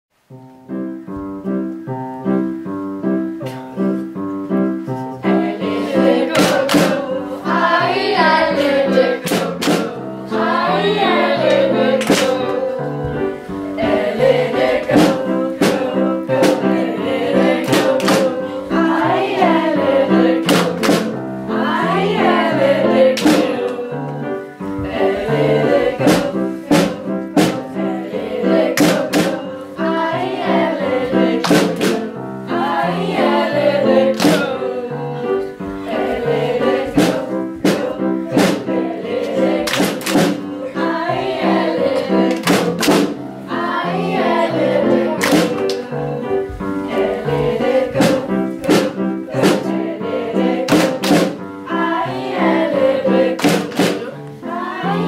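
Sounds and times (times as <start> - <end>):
instrumental accompaniment: 0.2 - 55.0
group of voices singing: 5.2 - 55.0
hand claps: 12.0 - 12.4, 17.7 - 18.3, 20.5 - 21.1, 31.4 - 32.0, 34.2 - 34.5, 39.7 - 40.4, 42.3 - 43.1, 45.2 - 45.8, 50.7 - 51.4, 53.4 - 54.0.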